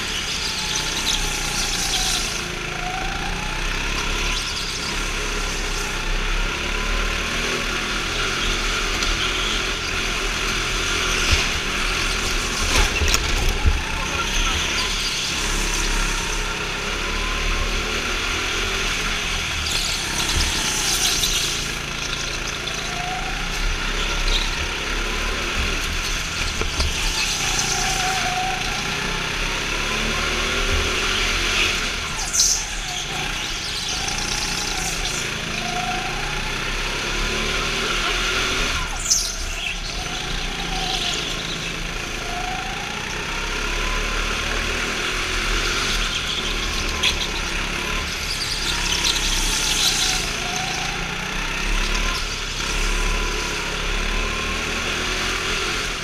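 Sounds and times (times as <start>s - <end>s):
go-kart engine revving: 0.0s - 56.0s.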